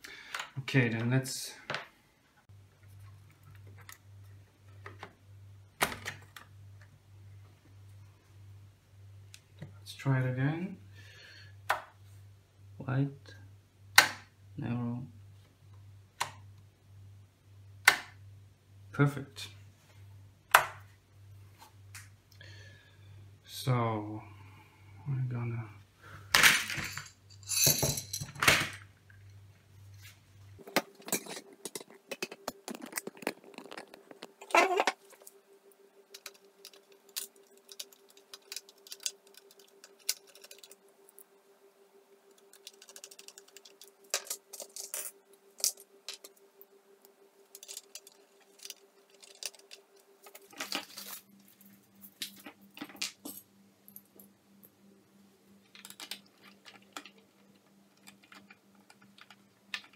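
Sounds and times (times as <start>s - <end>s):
faint steady hum: 0.0s - 59.9s
small parts clicking and rattling: 30.6s - 35.4s, 36.0s - 41.3s, 42.3s - 46.7s, 47.4s - 54.7s, 55.6s - 59.9s.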